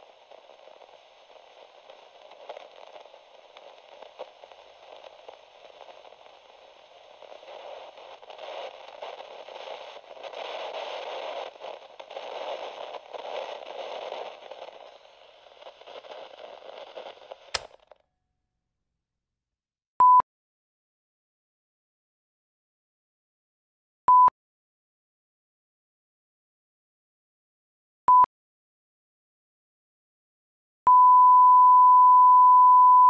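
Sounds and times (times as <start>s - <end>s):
crackling static hiss: 0.0s - 17.9s
click: 17.5s - 18.0s.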